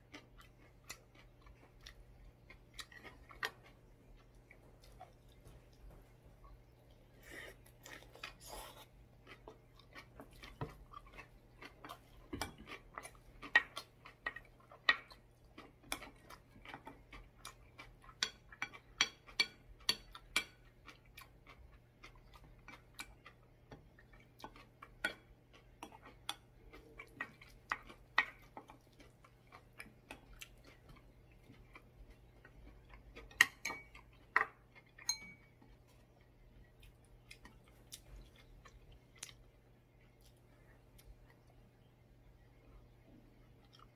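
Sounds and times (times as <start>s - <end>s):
close-miked chewing: 0.0s - 43.9s
faint low hum: 0.0s - 43.9s
utensils clicking on ceramic bowls: 35.0s - 35.4s.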